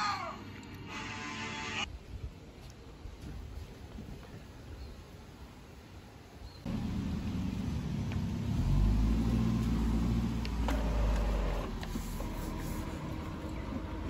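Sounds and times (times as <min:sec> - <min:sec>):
vehicle engine rumbling: 0:06.6 - 0:14.0.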